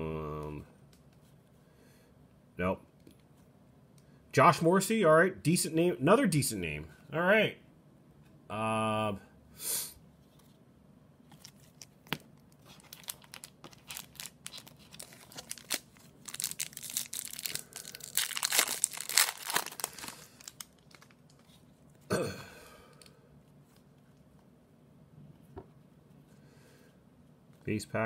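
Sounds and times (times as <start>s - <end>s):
card pack wrapper tearing: 11.4s - 21.6s.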